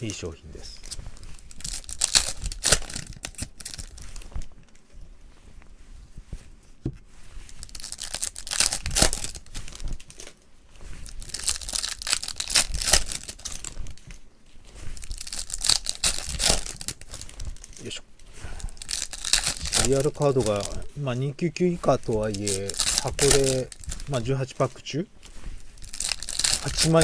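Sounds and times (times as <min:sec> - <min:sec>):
card wrappers tearing and crinkling: 0:00.8 - 0:04.4, 0:07.5 - 0:10.4, 0:11.0 - 0:14.2, 0:14.9 - 0:18.0, 0:18.6 - 0:27.0.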